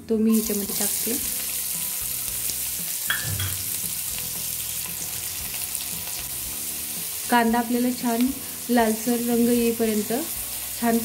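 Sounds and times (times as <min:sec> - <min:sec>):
onion sizzling in hot oil: 0:00.3 - 0:11.0.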